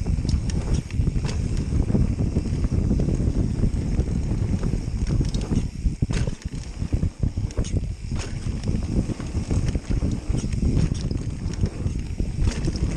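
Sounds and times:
bike clicks and rattles: 0:00.0 - 0:12.9
bike tyre noise on dirt: 0:00.0 - 0:12.9
wind buffeting microphone: 0:00.0 - 0:12.9.

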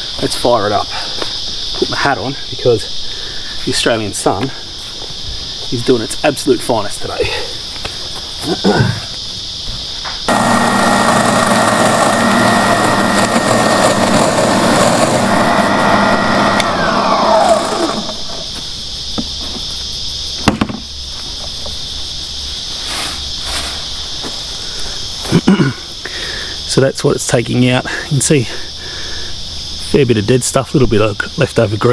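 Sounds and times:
high insect chirr: 0:00.0 - 0:31.9
electric motor running with falling whine: 0:10.3 - 0:18.5
tines raking through lawn: 0:10.3 - 0:18.6.

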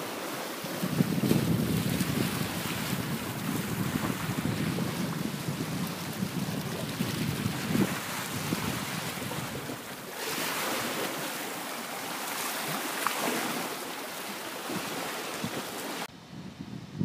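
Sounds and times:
waves splashing over rocks: 0:00.0 - 0:16.1
wind buffeting microphone: 0:00.6 - 0:11.2, 0:15.4 - 0:17.0.

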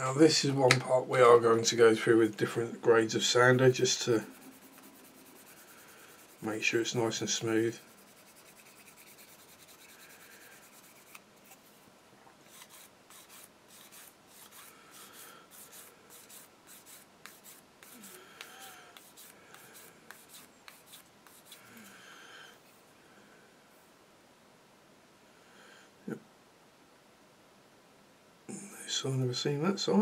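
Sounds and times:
sanding pad rubbing plastic: 0:04.1 - 0:06.5, 0:07.6 - 0:11.2, 0:12.5 - 0:21.6.

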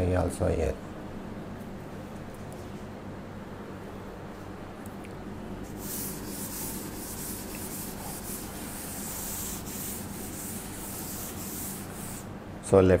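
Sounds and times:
duster rubbing chalkboard: 0:05.6 - 0:12.3.

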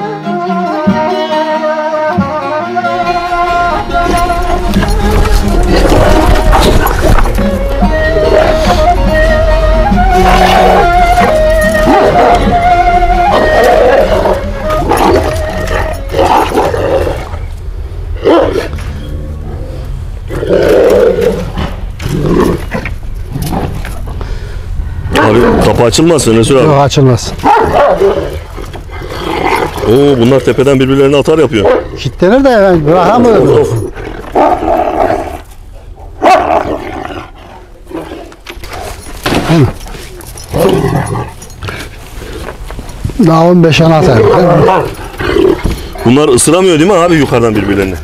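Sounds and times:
dogs growling and barking: 0:04.0 - 0:07.5, 0:10.1 - 0:17.5, 0:18.1 - 0:24.1, 0:27.4 - 0:30.3, 0:31.6 - 0:32.1, 0:33.2 - 0:42.9, 0:44.0 - 0:46.1
dogs barking aggressively: 0:27.4 - 0:29.8, 0:31.6 - 0:32.0, 0:34.3 - 0:42.1.

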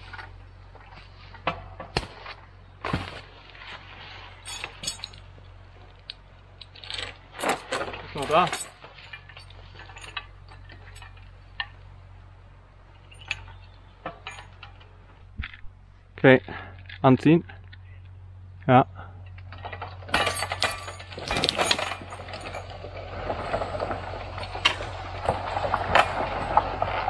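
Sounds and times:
metal chains clinking: 0:04.4 - 0:05.3, 0:06.6 - 0:11.2, 0:13.0 - 0:14.8, 0:20.1 - 0:22.8, 0:23.6 - 0:27.0.

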